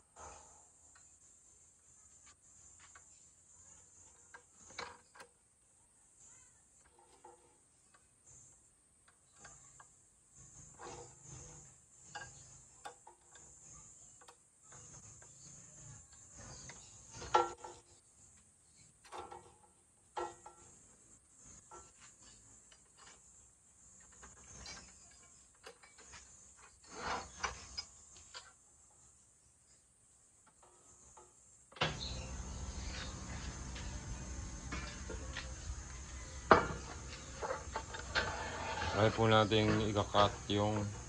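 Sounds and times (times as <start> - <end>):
metal clicks and scraping: 2.2 - 5.5, 6.8 - 28.6, 30.4 - 41.0
metal clatter: 16.2 - 18.0.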